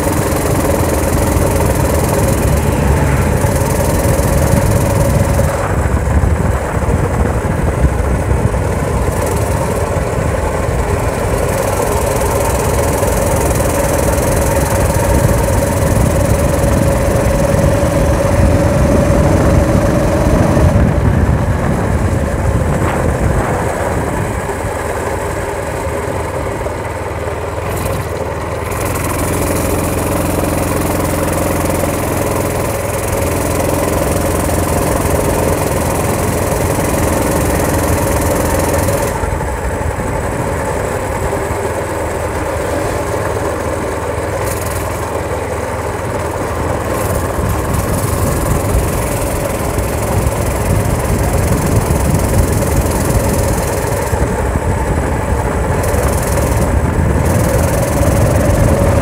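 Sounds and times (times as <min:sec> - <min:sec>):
wind buffeting microphone: 0:00.0 - 0:26.7, 0:46.8 - 0:59.0
motorized bicycle engine running: 0:00.0 - 0:59.0.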